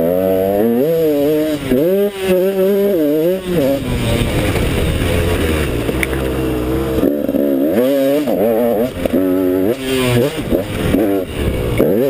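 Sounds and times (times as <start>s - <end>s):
dirt bike engine revving: 0.0s - 12.0s
rushing wind: 2.8s - 11.9s.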